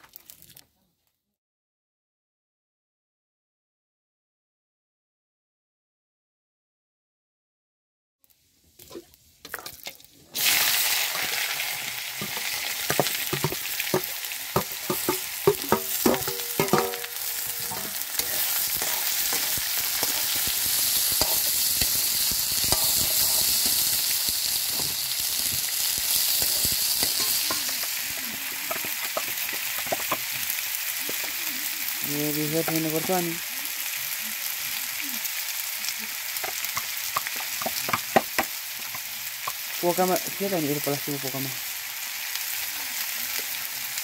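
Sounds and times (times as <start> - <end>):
vegetables sizzling in hot oil: 8.2 - 44.0
spatula scraping a wok: 10.4 - 32.0.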